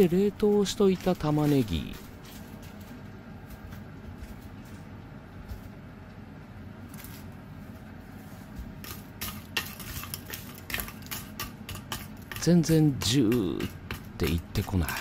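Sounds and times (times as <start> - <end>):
low steady hum: 0.0 - 15.0
wooden spatula scraping pot: 8.8 - 15.0.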